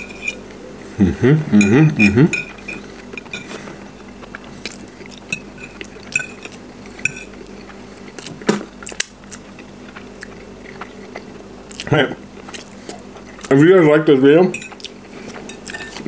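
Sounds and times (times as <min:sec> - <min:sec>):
fork scraping ceramic plate: 0:00.0 - 0:00.4, 0:05.3 - 0:07.4, 0:14.5 - 0:16.0.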